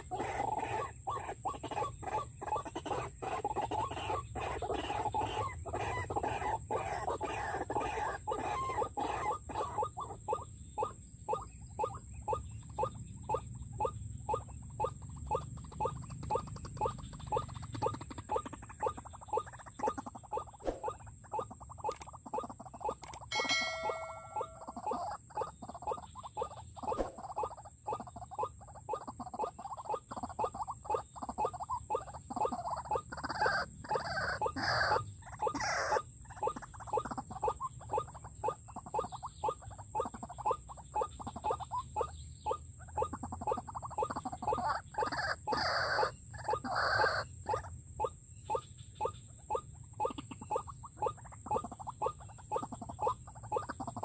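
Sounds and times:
waterhen calls: 0.0 - 10.2, 14.4 - 40.4, 42.8 - 47.7.

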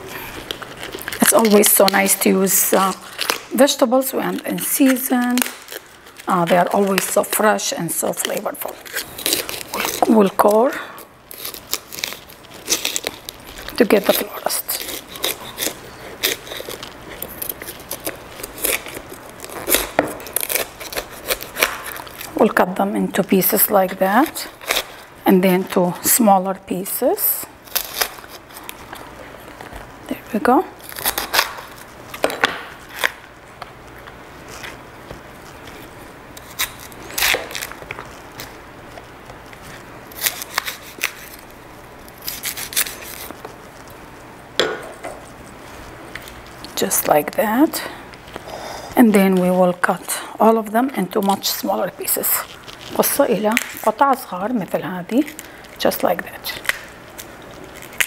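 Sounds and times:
knife crunching through cauliflower: 8.1 - 22.4, 27.6 - 29.9, 30.8 - 44.0
knife cutting cauliflower stalks: 13.8 - 22.4, 40.1 - 41.4.

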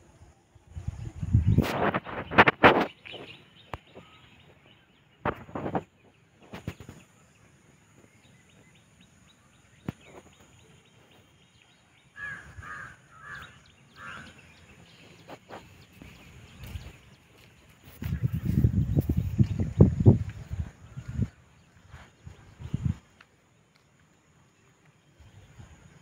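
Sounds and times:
crow cawing: 12.2 - 14.4.

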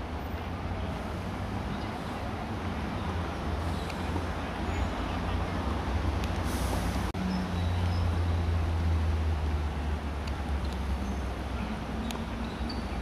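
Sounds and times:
faint hiss: 6.3 - 7.1.

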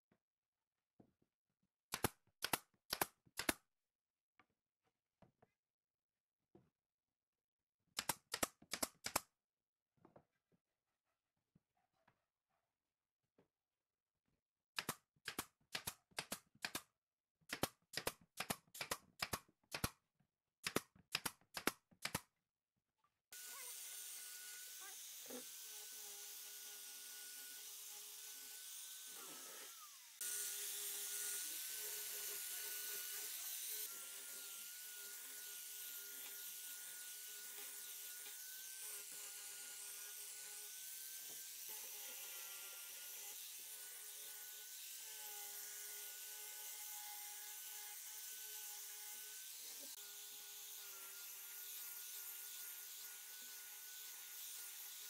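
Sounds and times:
angle grinder sanding wood: 23.4 - 35.2.

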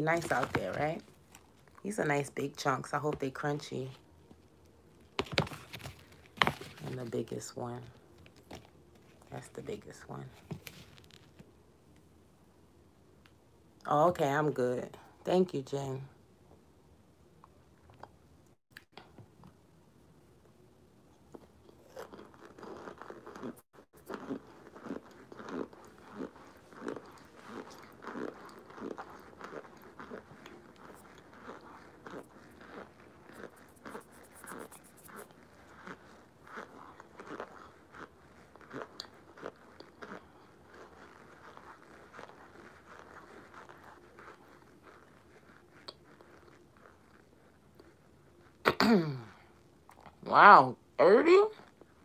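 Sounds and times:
person chewing crunchy chunks: 4.3 - 7.1, 21.1 - 48.6.

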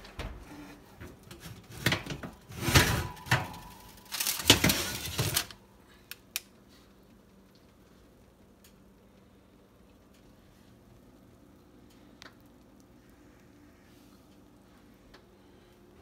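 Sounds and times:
scraping and rustling: 0.0 - 5.6.

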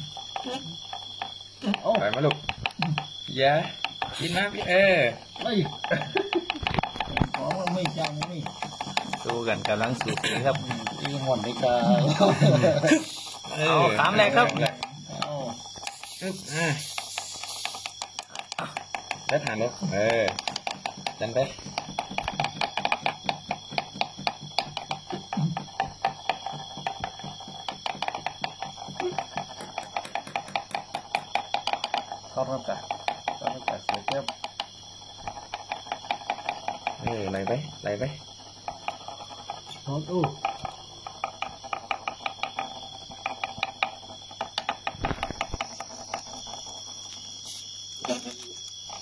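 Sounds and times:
stick clicking against wooden log: 0.0 - 11.8, 12.8 - 49.0
knocking: 0.0 - 48.2.

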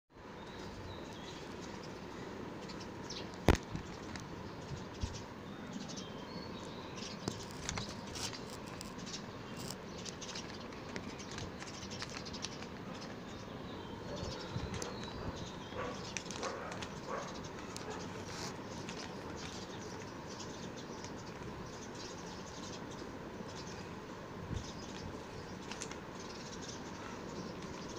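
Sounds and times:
plastic snack pouch crinkling: 7.2 - 9.0, 9.6 - 13.0, 16.0 - 17.0.

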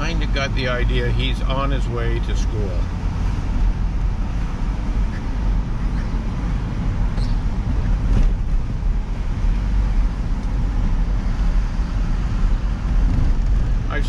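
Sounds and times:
road noise: 0.0 - 14.0
vehicle engine rumble: 0.0 - 14.0.

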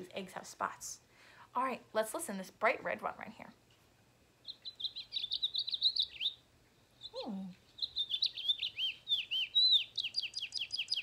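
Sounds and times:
bird song from small speaker: 4.4 - 11.0.

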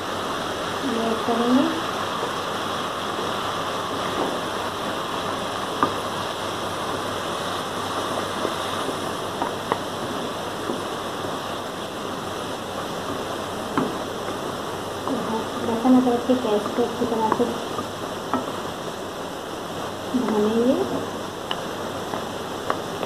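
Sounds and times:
meat sizzling in hot oil: 0.0 - 23.0.

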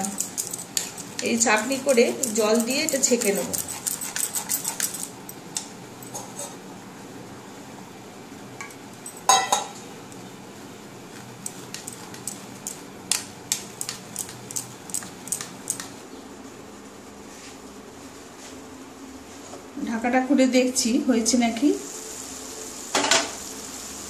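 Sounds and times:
spoon scraping metal strainer: 0.0 - 5.1.

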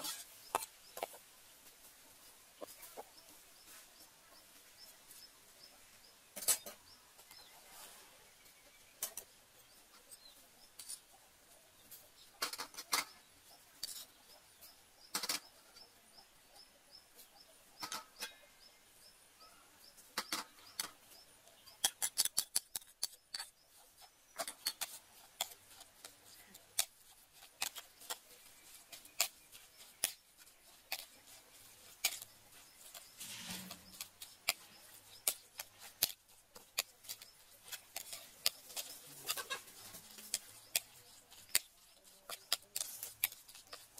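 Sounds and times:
metal spoon scraping a plate: 0.0 - 1.2, 30.9 - 43.9.

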